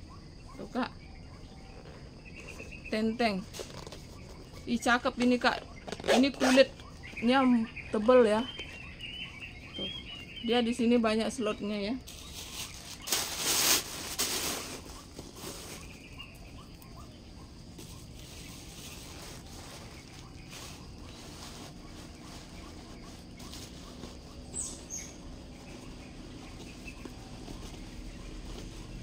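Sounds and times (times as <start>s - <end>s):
handbag rustling: 17.6s - 29.0s.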